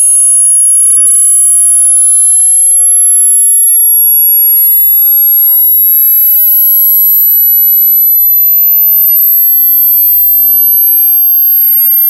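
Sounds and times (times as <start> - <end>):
high-pitched synthesized sine tone: 0.0 - 12.0.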